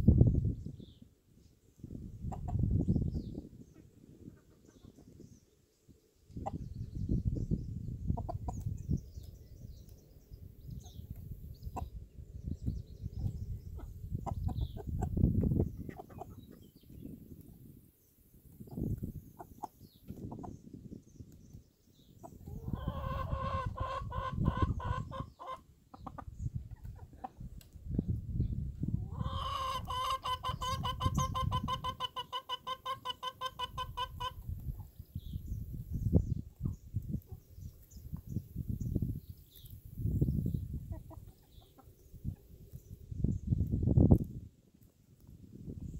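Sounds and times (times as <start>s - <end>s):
chickens clucking: 2.1s - 5.3s, 6.3s - 7.4s, 8.0s - 9.3s, 10.7s - 12.0s, 13.1s - 17.5s, 18.5s - 20.7s, 22.2s - 28.1s, 28.8s - 42.9s
rapid pulsing chicken calls: 2.2s - 5.2s, 6.3s - 9.3s, 13.2s - 17.8s, 18.5s - 20.7s, 22.1s - 27.5s, 29.0s - 43.0s.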